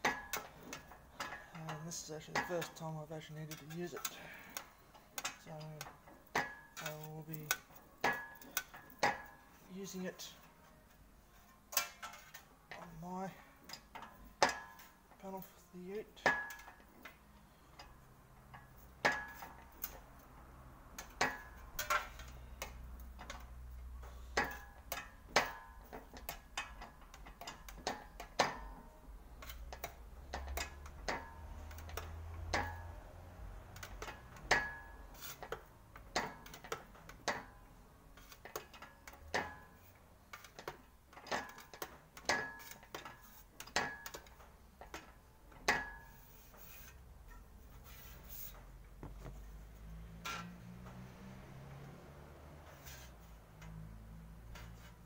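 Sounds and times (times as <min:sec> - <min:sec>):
metallic ticks and clanks: 0:00.0 - 0:11.0, 0:11.7 - 0:47.7
low rumble of wheels: 0:46.9 - 0:55.0.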